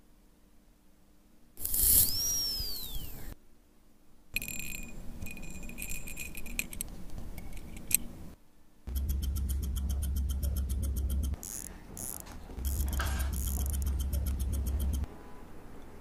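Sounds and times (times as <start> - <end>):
watch ticking: 8.9 - 15.1.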